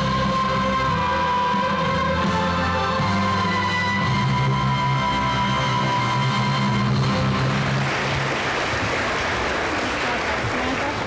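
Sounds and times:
audience applause: 6.4 - 11.0.

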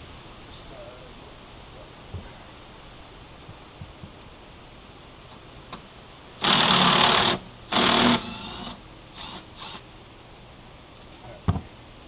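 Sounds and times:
cordless drill whirring: 6.4 - 9.8.

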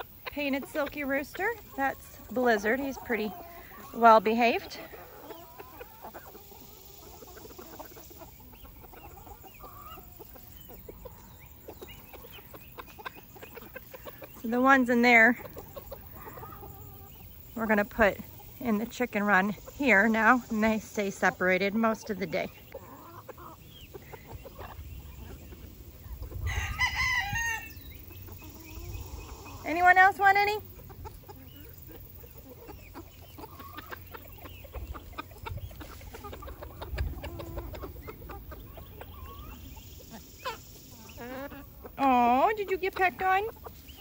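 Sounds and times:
chickens clucking softly: 0.0 - 44.0
rooster crowing: 26.4 - 27.8.

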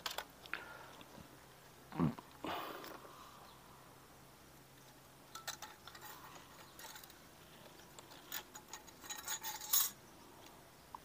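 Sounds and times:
light metallic clicks and clinks: 4.8 - 10.0.

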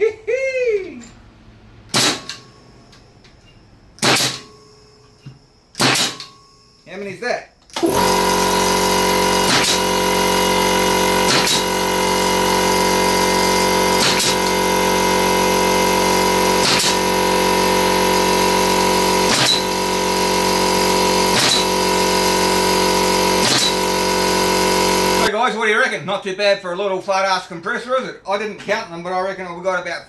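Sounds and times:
nail gun shots into wood: 1.9 - 2.4, 4.0 - 4.6, 5.7 - 6.4, 9.4 - 9.8, 11.2 - 11.7, 14.0 - 14.4, 16.6 - 17.0, 19.3 - 19.8, 21.3 - 21.7, 23.4 - 23.8
air compressor motor hum: 7.7 - 25.3.

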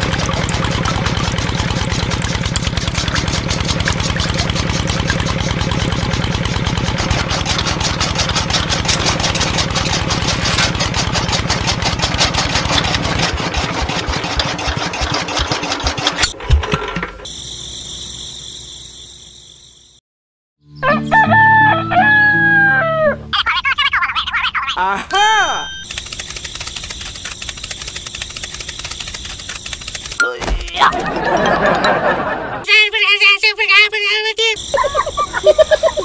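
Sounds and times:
engine knock: 0.0 - 16.2, 25.8 - 31.0
small engine running: 0.0 - 16.4, 25.8 - 32.5, 34.6 - 36.0
rooster crowing: 20.8 - 23.2
bright ringing tone: 25.1 - 26.0.

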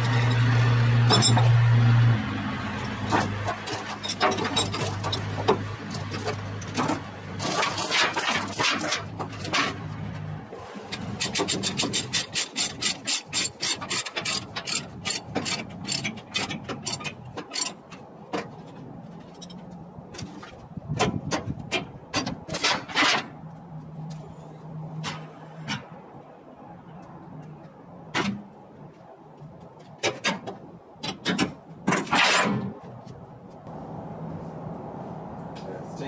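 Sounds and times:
chains rattling on trailer deck: 0.0 - 1.6, 3.0 - 9.9, 11.1 - 17.9, 22.2 - 23.3
ratchet clicking: 11.2 - 17.7.

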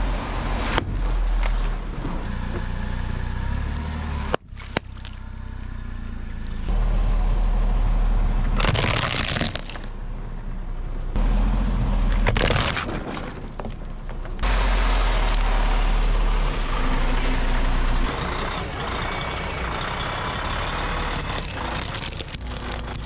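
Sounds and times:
engine running low: 0.0 - 23.0
plastic cracking and crunching: 8.6 - 9.9, 12.1 - 13.8, 21.2 - 23.0
sharp cracks or pops: 8.6 - 9.9, 12.1 - 14.4, 21.2 - 23.0
tyres crushing objects: 8.6 - 9.9, 12.1 - 14.4, 21.2 - 23.0.

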